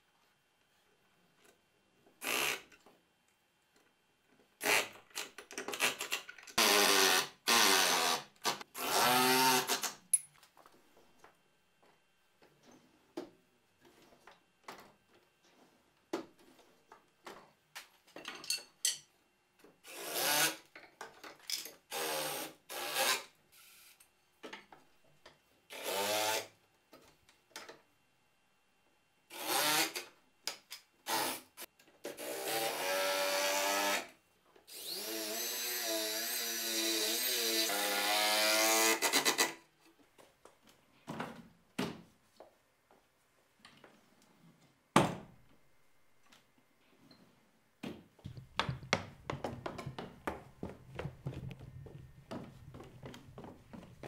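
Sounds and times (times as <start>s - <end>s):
drill driving screws into wood: 2.2s - 2.7s, 4.6s - 10.0s, 19.8s - 20.6s, 21.9s - 23.9s, 25.7s - 26.5s, 29.3s - 30.1s, 31.0s - 34.1s, 34.7s - 39.6s
boards and tools knocking: 47.8s - 54.0s.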